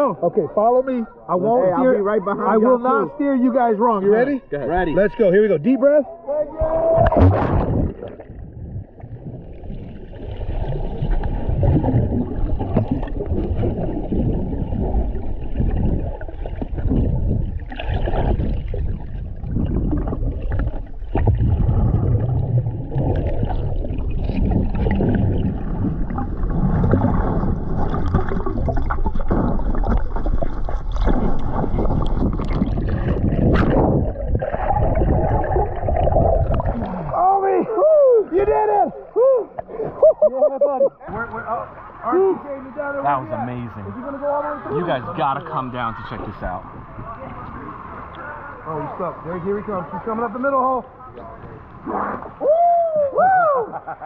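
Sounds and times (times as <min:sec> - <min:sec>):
underwater rumble of water and bubbles: 0:06.3 - 0:37.6, 0:42.7 - 0:52.7
sharp knocks underwater: 0:06.6 - 0:09.6, 0:10.6 - 0:37.2.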